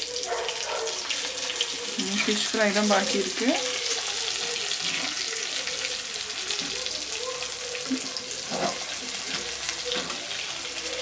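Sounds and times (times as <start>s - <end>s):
fish frying in oil: 0.0s - 11.0s.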